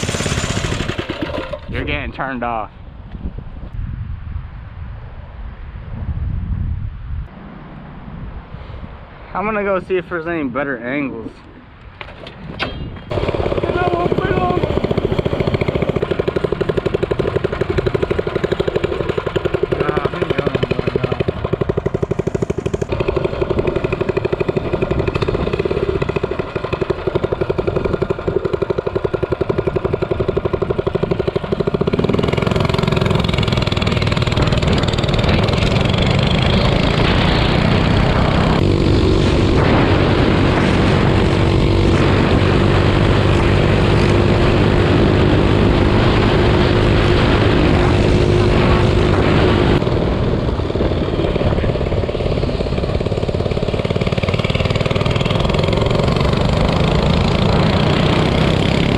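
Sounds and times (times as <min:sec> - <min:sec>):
minibike engine idling: 0:13.1 - 0:36.7.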